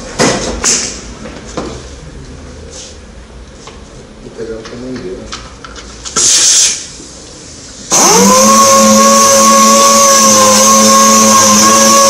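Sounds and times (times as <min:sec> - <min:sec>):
loud burst of hiss: 0:06.2 - 0:07.0
orbital sander whining: 0:07.9 - 0:12.0.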